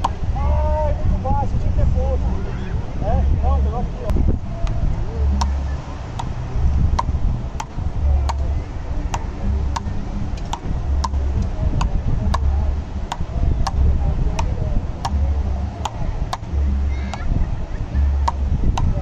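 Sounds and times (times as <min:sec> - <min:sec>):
rubber ball hitting paddles: 0:04.6 - 0:05.6, 0:06.2 - 0:17.3, 0:18.2 - 0:19.0.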